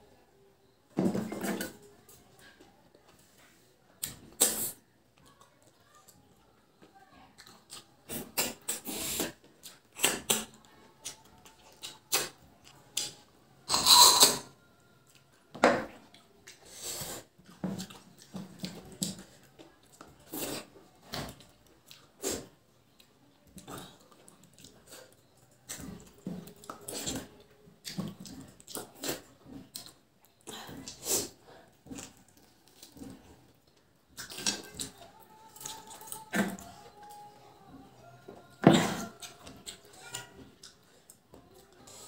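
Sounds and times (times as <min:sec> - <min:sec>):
wet mouth smacks and chewing: 0:34.2 - 0:34.9.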